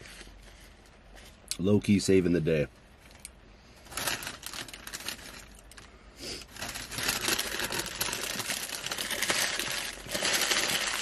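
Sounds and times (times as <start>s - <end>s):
paper wrapper crinkling: 3.8s - 11.0s.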